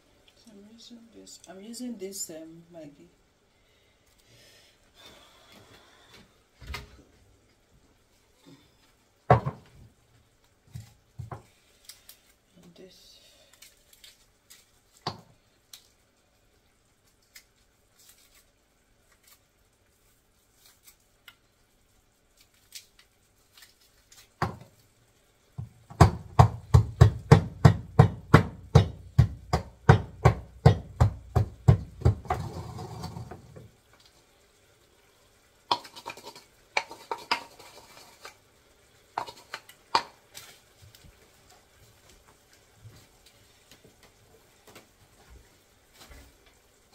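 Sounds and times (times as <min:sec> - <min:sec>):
pestle pounding in stone mortar: 0:25.6 - 0:32.6
pestle scraping: 0:25.9 - 0:33.4, 0:35.7 - 0:38.3, 0:39.2 - 0:40.1.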